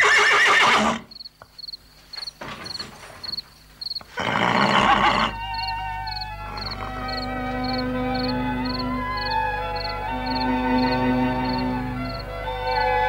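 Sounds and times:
horse whinnying: 0.0 - 1.1, 4.1 - 5.4, 6.4 - 7.5
soft music with held notes: 5.3 - 13.0.

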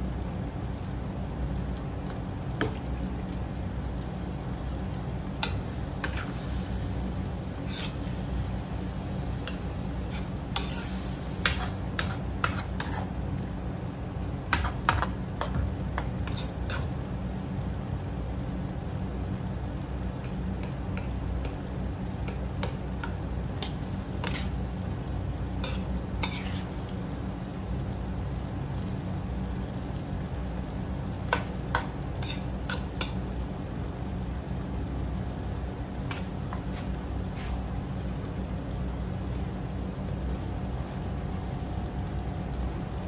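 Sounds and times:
metal spoon scraping wok: 5.4 - 6.7, 7.6 - 8.4, 9.4 - 13.1, 16.0 - 16.9, 22.2 - 24.6, 25.6 - 26.9, 31.3 - 33.2.

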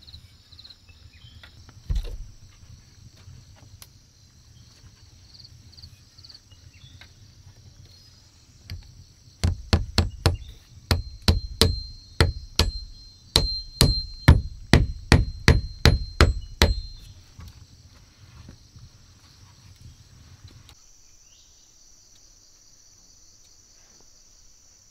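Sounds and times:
wooden stick knocking metal blade: 9.4 - 17.1.

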